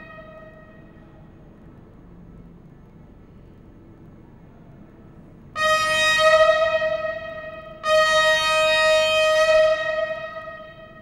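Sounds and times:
locomotive horn blasts: 0.0s - 1.0s, 5.6s - 11.0s.

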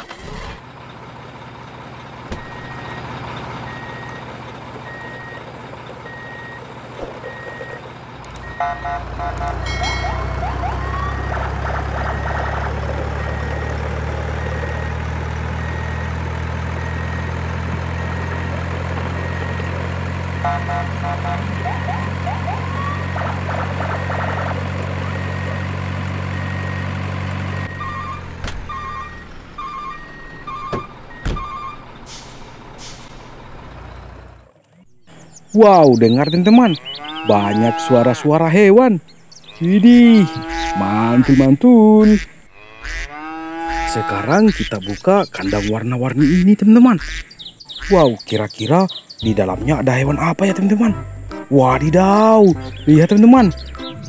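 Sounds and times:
truck engine running: 0.0s - 54.0s
reversing alarm beeping: 2.4s - 6.6s, 7.2s - 7.8s, 8.4s - 23.1s, 25.0s - 32.0s
high tones and rising chirps: 34.8s - 37.8s, 43.8s - 54.0s.

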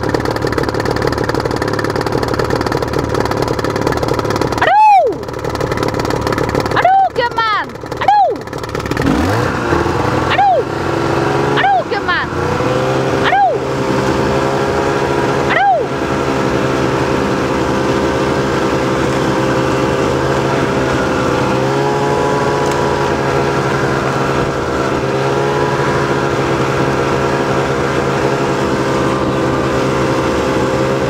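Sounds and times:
snowmobile engine running: 0.0s - 31.0s.

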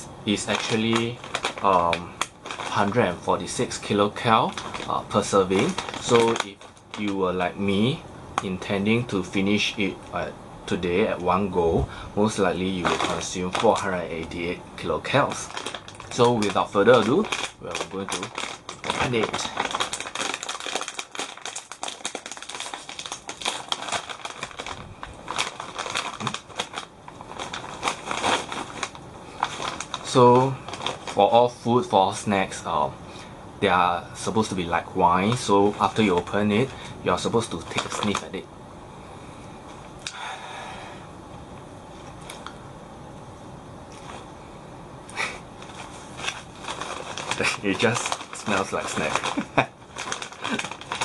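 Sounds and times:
plastic bag crinkling: 0.3s - 9.8s, 10.7s - 32.2s, 34.2s - 38.4s, 45.6s - 51.0s.

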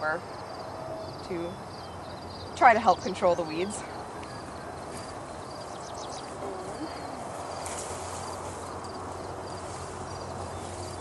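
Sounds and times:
insects chirping: 0.2s - 11.0s
plant stems rustling: 6.2s - 11.0s.

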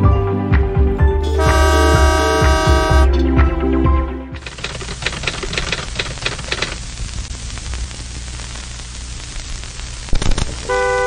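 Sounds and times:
static hiss: 1.4s - 3.0s, 4.4s - 11.0s
crackling: 4.4s - 11.0s.

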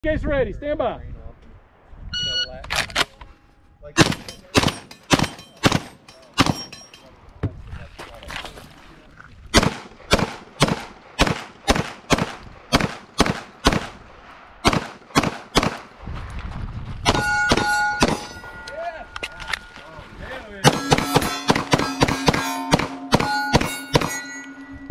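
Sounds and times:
pistol shots: 4.0s - 6.8s, 9.6s - 15.9s, 17.1s - 18.4s, 20.6s - 24.3s
steady ringing tones: 4.2s - 7.1s, 17.1s - 20.0s, 20.6s - 24.9s
shotgun blast: 14.6s - 15.9s, 20.6s - 24.2s.

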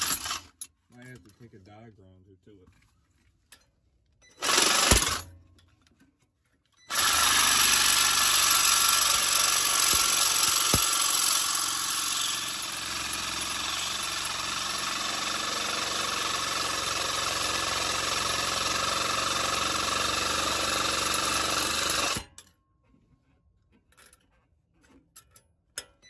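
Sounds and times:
reciprocating saw cutting metal: 4.4s - 5.3s, 6.9s - 22.3s.

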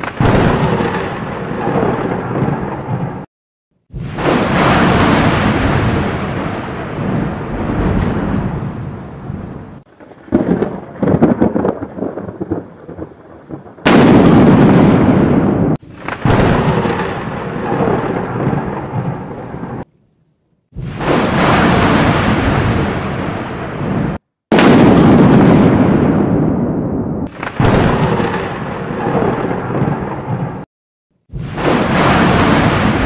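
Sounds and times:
thunder cracks and rumbles: 0.0s - 19.9s, 20.8s - 33.0s.

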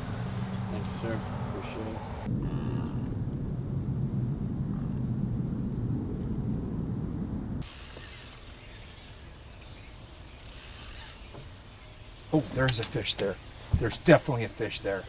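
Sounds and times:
low engine drone: 0.0s - 7.7s
outdoor hiss: 7.6s - 14.6s.

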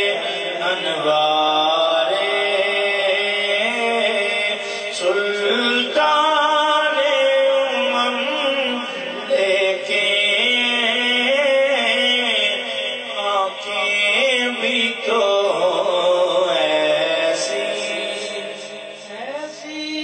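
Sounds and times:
man singing into a microphone: 0.0s - 20.0s.

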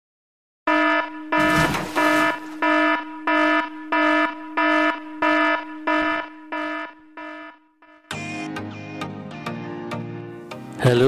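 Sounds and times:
pulsing buzzing alarm: 0.7s - 8.2s.

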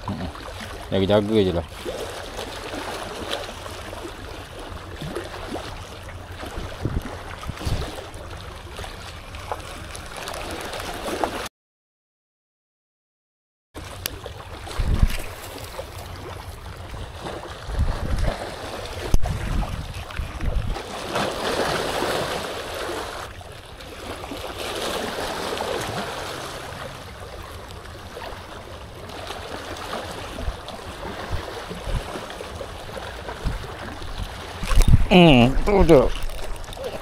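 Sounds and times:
wind gusts on microphone: 6.6s - 8.0s, 14.7s - 15.4s, 17.0s - 18.4s, 19.0s - 20.8s, 33.4s - 36.3s
waves splashing on rocks: 17.7s - 37.0s.

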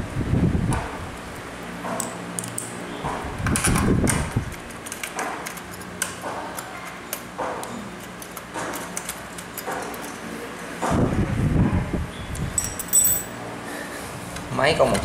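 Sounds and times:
metal parts clicking and clattering: 12.6s - 13.4s.

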